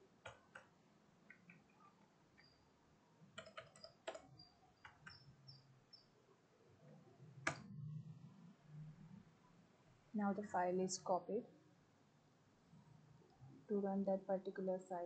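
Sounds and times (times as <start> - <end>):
keyboard keys tapping: 3.4 - 5.4.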